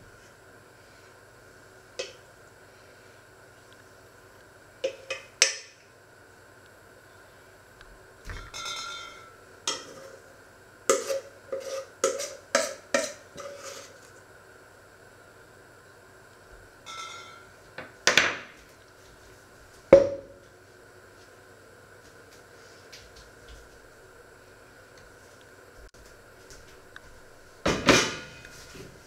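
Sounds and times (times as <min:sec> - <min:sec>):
scraping bowl: 0:08.4 - 0:10.3, 0:10.9 - 0:14.1.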